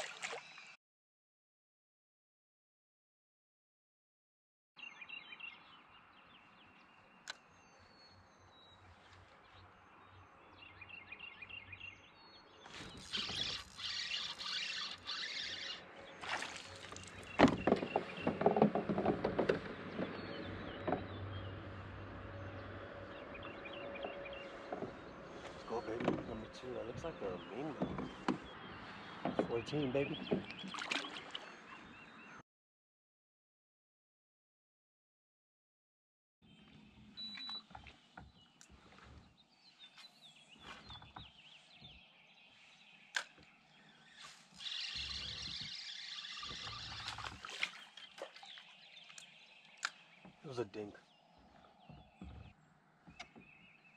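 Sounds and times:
birds chirping: 4.8s - 32.4s, 36.4s - 53.9s
fishing rod knocks and rattles: 16.8s - 20.2s.

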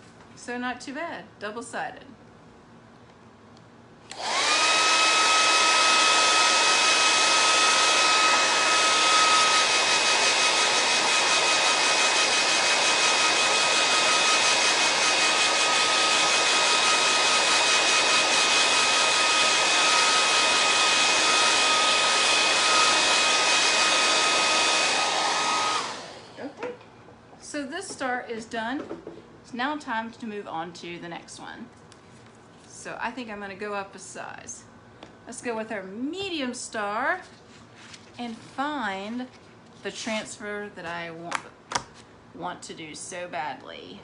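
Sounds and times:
hair dryer running: 4.1s - 26.7s.

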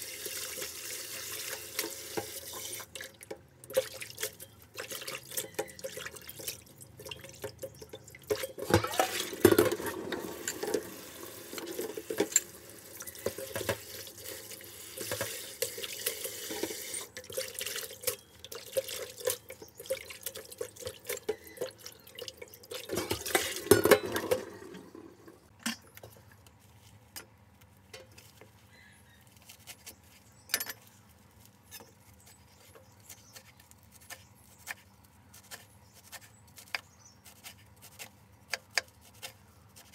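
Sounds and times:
water splashing: 8.2s - 11.8s.

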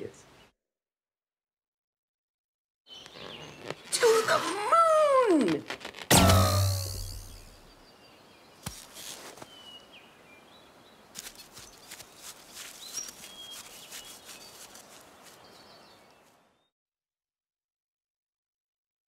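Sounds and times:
small birds chirping: 2.9s - 16.7s.

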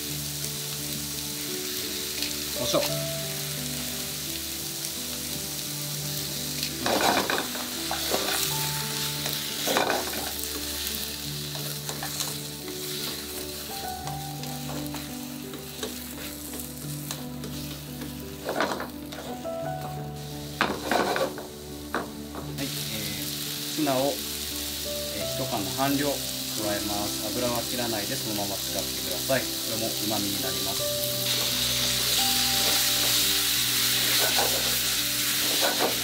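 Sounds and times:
vegetables sizzling in frying pan: 0.0s - 36.0s
stirring vegetables in pan: 9.2s - 13.7s.

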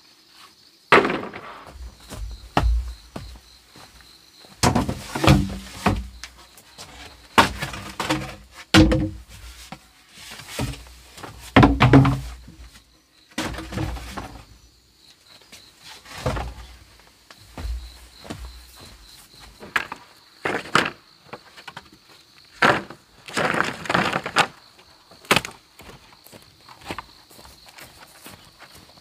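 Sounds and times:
irregular thuds and cracks: 0.9s - 3.4s, 4.6s - 6.4s, 7.3s - 9.4s, 10.5s - 12.7s, 17.4s - 19.0s.

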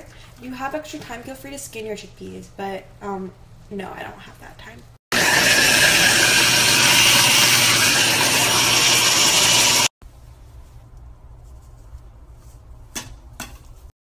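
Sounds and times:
food chopper motor whirring: 5.1s - 9.9s.

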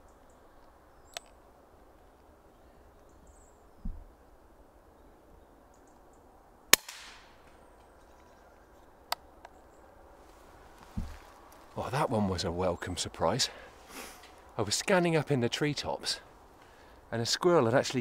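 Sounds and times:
soft low thump: 3.8s - 4.1s, 10.9s - 11.3s
air rifle shot crack: 6.7s - 7.4s.

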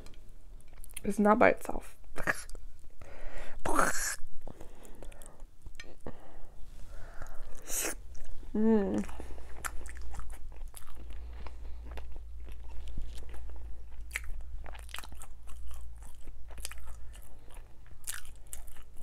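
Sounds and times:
person chewing: 7.1s - 19.0s.

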